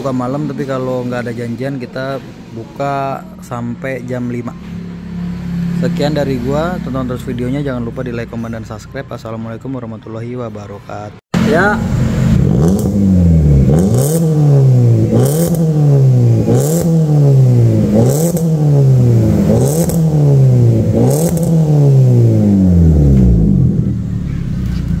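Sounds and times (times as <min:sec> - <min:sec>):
car engine revving: 0:03.2 - 0:08.2, 0:11.4 - 0:25.0.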